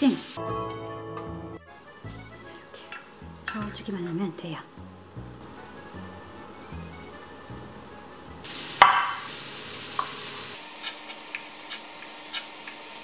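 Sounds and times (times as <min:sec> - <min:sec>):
steady hiss: 0:00.0 - 0:00.4, 0:01.7 - 0:13.0
background music: 0:00.4 - 0:09.3
knife cutting on wooden board: 0:10.8 - 0:12.6.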